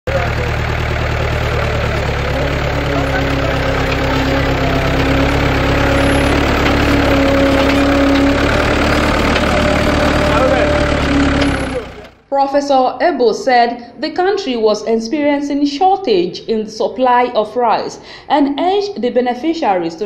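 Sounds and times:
tractor diesel engine running: 0.0s - 12.3s
steady whine: 0.1s - 12.1s.

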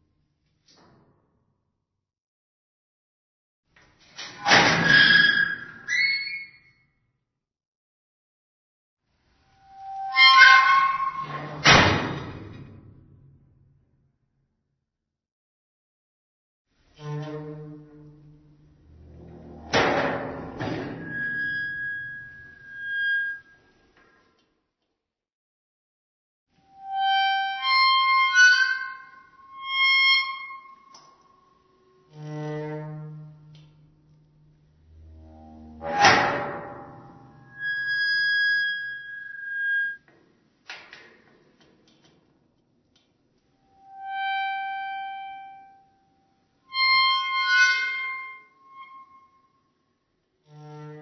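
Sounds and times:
squeaky metal hinge squealing: 4.8s - 6.7s, 9.6s - 11.6s, 20.8s - 23.6s, 26.8s - 31.3s, 35.0s - 40.1s, 46.7s - 49.5s.

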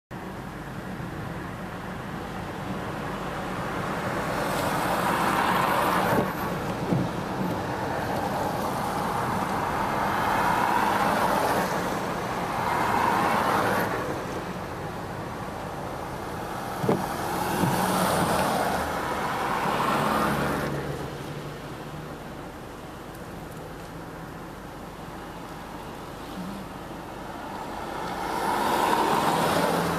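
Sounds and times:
tyres hissing on wet street: 2.2s - 29.9s
passenger train on bridge: 2.4s - 22.7s
short knocks: 16.8s - 18.4s.

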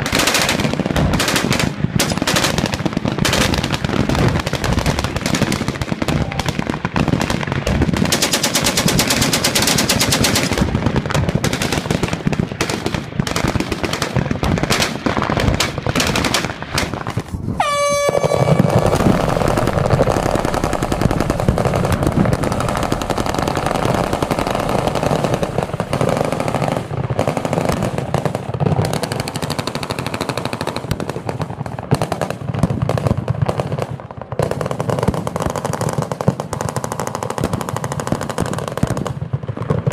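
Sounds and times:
machine guns firing: 0.0s - 17.2s, 18.3s - 39.9s
range horn: 17.6s - 19.5s.

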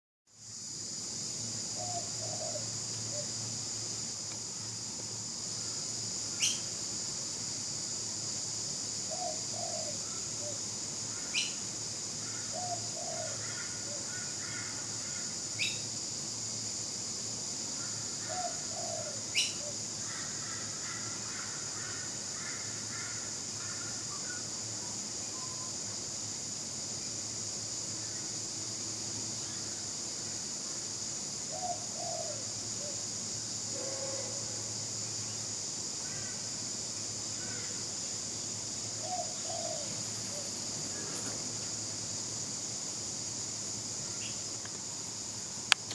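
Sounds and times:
steady high-pitched hiss: 0.3s - 45.9s
small bird chirps: 6.4s - 6.7s, 15.6s - 15.8s, 19.3s - 19.7s.

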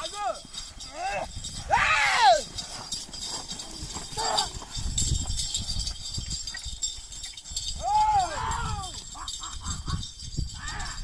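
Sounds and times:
man shouting: 0.0s - 2.5s, 7.8s - 9.0s
hooves and block dragging: 0.0s - 9.3s.

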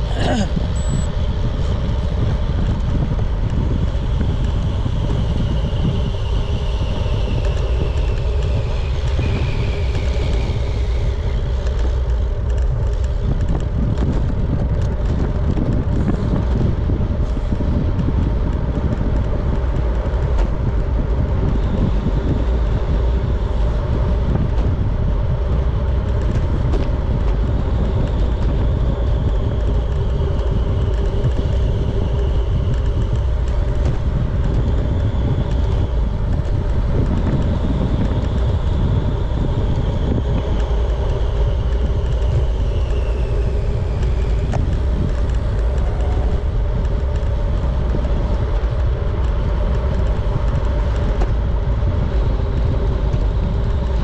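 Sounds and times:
road rumble: 0.0s - 54.0s
wind buffeting: 0.0s - 54.0s.

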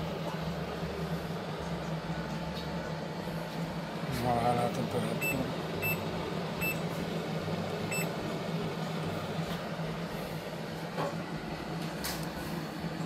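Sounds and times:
refrigerator humming: 0.0s - 13.0s
control panel beep: 5.2s - 6.0s, 6.6s - 6.8s, 7.9s - 8.1s.

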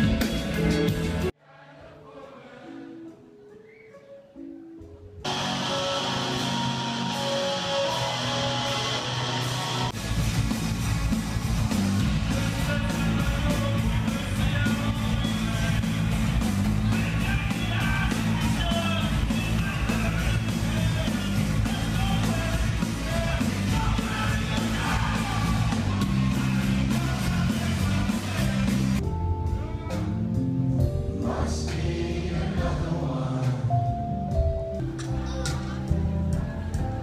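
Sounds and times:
rock band playing: 0.0s - 1.3s, 5.2s - 31.2s
person singing: 16.9s - 28.9s.

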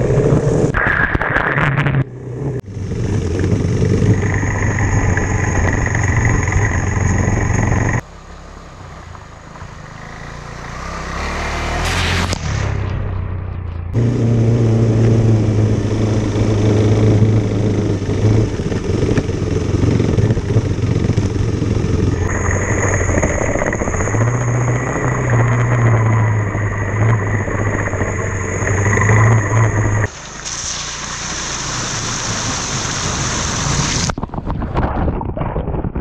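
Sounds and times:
motorcycle engine running: 2.0s - 11.4s, 13.4s - 30.2s.

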